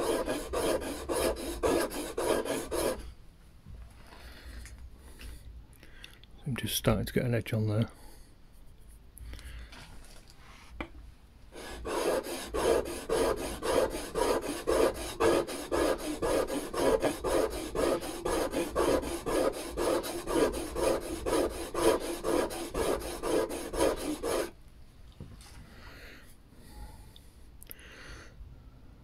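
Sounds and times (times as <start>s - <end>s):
chisel rubbing on whetstone: 0.0s - 3.0s, 11.6s - 24.5s.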